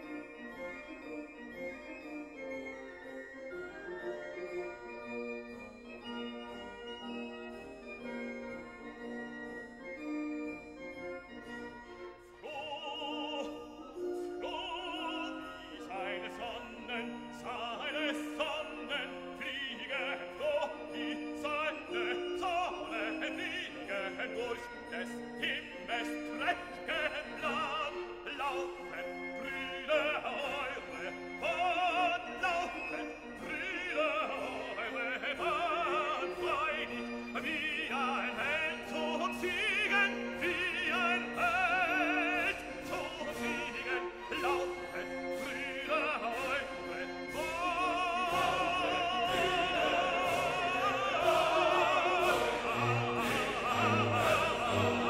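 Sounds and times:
classical music: 0.0s - 55.0s
operatic voice singing: 12.4s - 55.0s.

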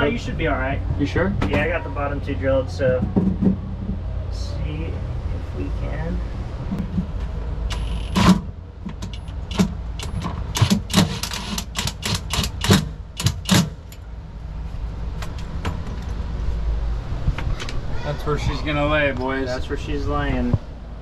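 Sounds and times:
steady low hum: 0.0s - 21.0s
tools knocking and clanking: 2.9s - 4.0s.

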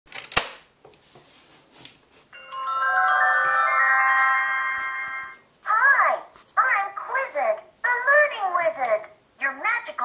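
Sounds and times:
electronic toy bell-like chime: 2.4s - 5.4s.

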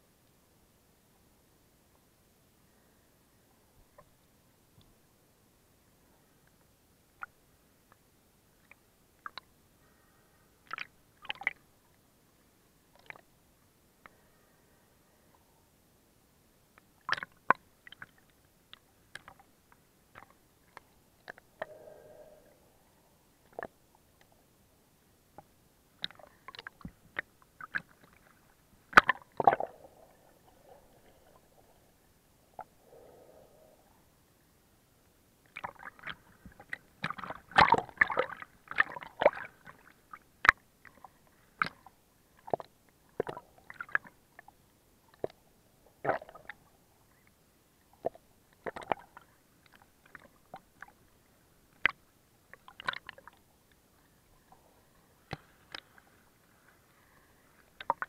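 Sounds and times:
water splashing and gurgling: 26.0s - 33.7s, 35.5s - 40.1s, 48.0s - 49.2s.

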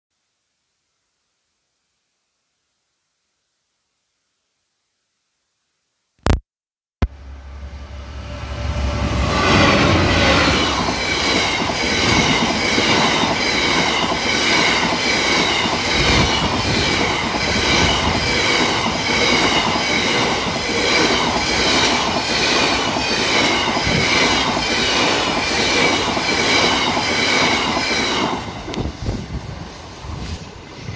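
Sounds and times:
diesel locomotive engine hum: 7.0s - 30.9s
train wagons rumbling and clattering: 8.2s - 30.9s.

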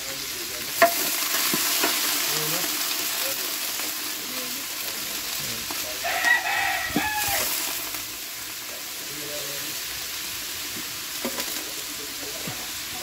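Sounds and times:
pot sizzling on fire: 0.0s - 13.0s
rooster crowing: 6.0s - 7.7s.

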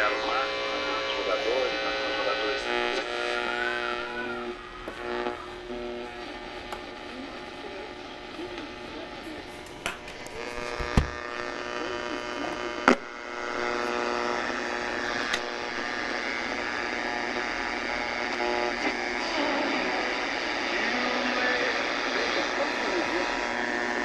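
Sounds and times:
wavering radio whistles: 0.0s - 5.8s
radio buzzing hum over static: 0.0s - 24.0s.

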